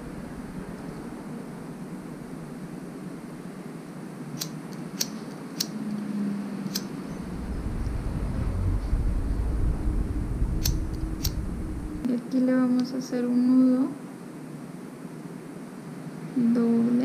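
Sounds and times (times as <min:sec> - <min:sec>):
steady background hum: 0:00.0 - 0:17.0
low rumble: 0:06.2 - 0:12.2
lighter wheel clicking: 0:06.7 - 0:06.9.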